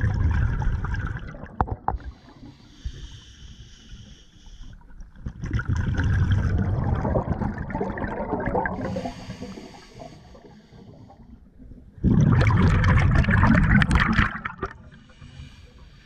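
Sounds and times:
exhaled bubbles gurgling: 0.0s - 2.4s, 4.8s - 15.3s
regulator inhalation hiss: 2.2s - 4.7s, 8.8s - 11.0s, 15.0s - 16.0s.

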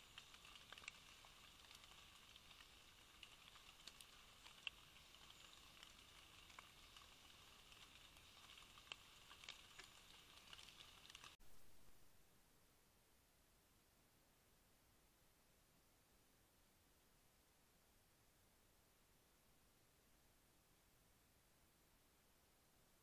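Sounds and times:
soft ticks: 0.0s - 11.4s
faint high hiss: 0.0s - 23.0s.

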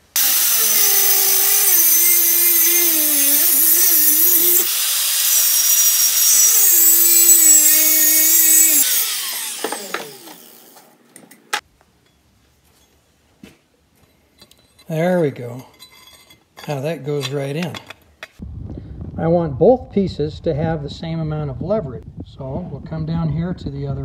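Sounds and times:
angle grinder cutting steel pipe: 0.0s - 10.9s
metallic clink: 14.0s - 14.9s, 15.5s - 18.1s.

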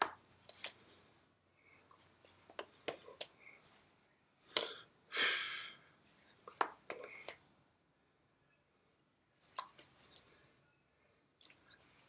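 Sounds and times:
soft mouth or hand clicks: 11.4s - 11.7s.

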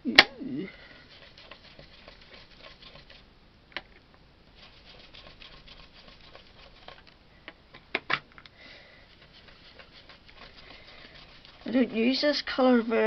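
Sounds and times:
ink brush scuffing over stencil: 1.1s - 3.2s, 4.6s - 7.0s, 9.0s - 13.0s.

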